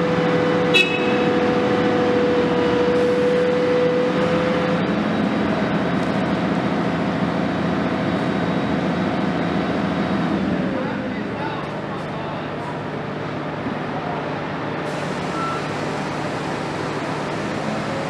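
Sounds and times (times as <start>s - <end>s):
diesel engine running under load: 0.0s - 18.0s
hydraulic whine: 14.8s - 18.0s.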